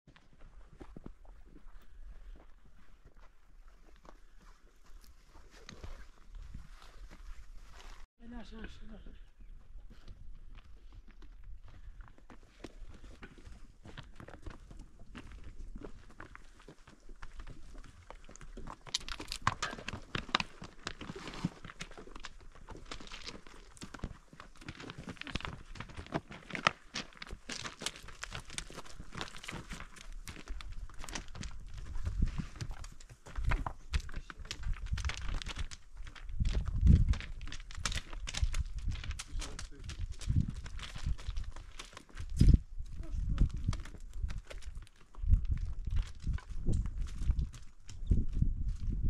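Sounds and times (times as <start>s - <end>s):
dry plants rustling and crunching: 17.2s - 49.0s.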